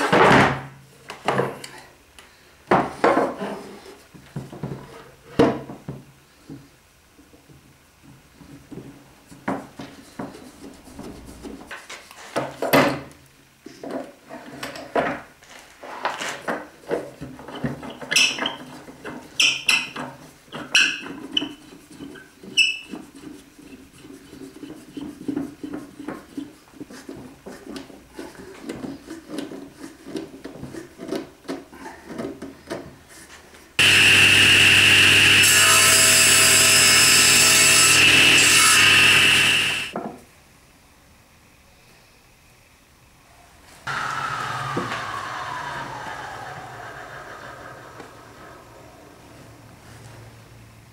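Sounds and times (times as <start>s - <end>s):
table saw running: 33.8s - 40.0s, 43.9s - 49.4s.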